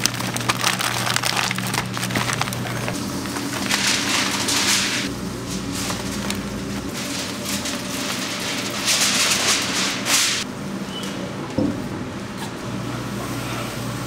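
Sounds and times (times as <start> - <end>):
aluminium foil crinkling: 0.0 - 10.4.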